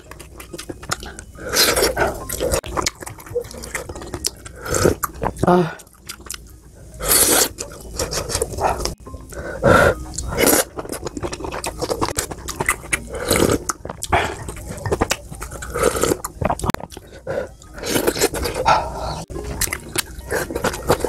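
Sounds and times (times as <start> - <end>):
chewing: 0.0 - 21.0
person slurping broth: 7.0 - 10.7, 13.0 - 14.6.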